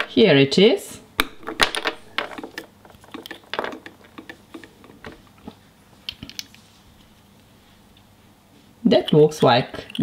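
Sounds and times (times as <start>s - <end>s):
plastic toy pieces clicking: 1.6s - 5.2s.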